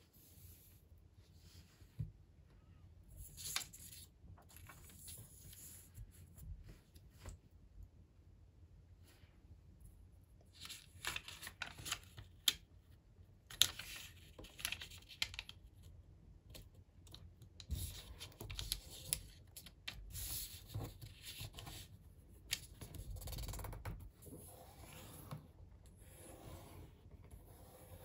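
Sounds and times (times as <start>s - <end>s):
paper crackling: 10.6s - 12.6s.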